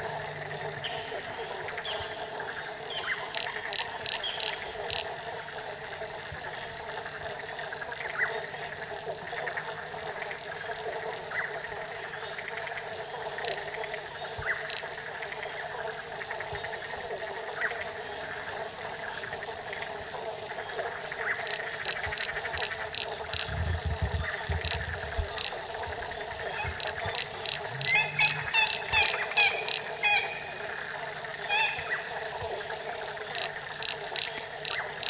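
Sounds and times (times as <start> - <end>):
chorus of frogs calling: 0.0 - 35.0
sharp single frog call: 26.5 - 30.7.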